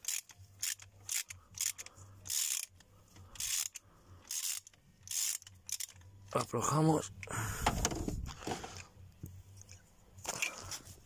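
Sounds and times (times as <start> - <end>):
ratchet wrench clicking: 0.0 - 6.3.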